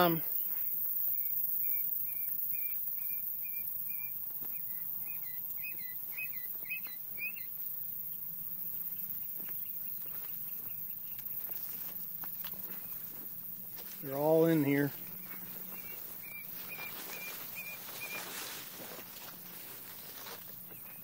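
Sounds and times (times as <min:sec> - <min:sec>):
quail chirping: 0:00.0 - 0:07.7, 0:14.2 - 0:19.4.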